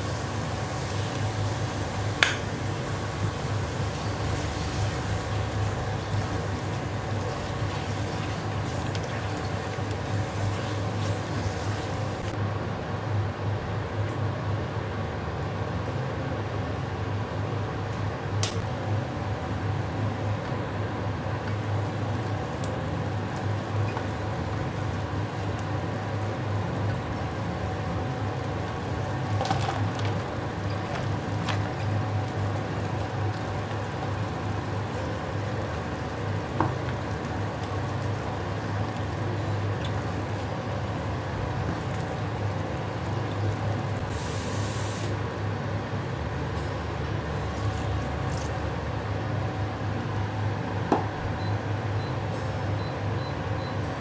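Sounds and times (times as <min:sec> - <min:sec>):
sauce bubbling: 0:00.0 - 0:12.4, 0:18.8 - 0:44.5.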